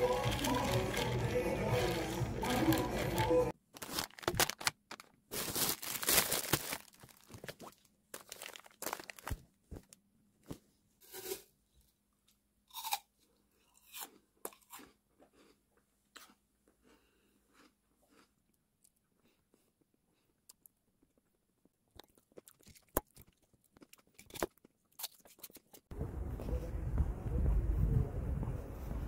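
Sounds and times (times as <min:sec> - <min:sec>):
person chewing crisp food: 0:12.7 - 0:25.9.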